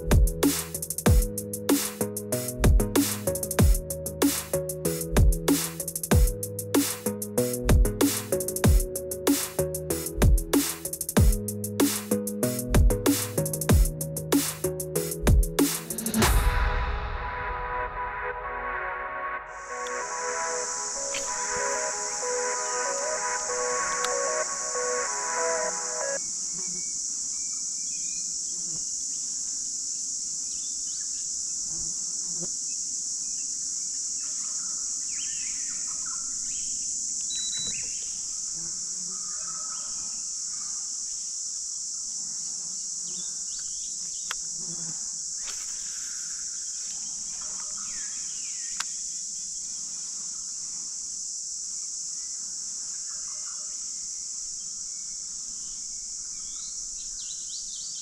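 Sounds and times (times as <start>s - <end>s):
insect chorus: 0.0s - 2.5s, 19.5s - 58.0s
bird calls: 37.3s - 38.2s.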